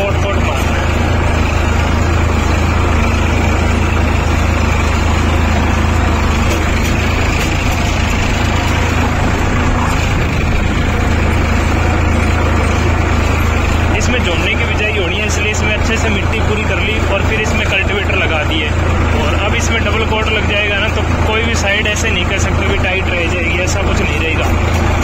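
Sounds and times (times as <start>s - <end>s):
tractor diesel engine droning: 0.0s - 25.0s.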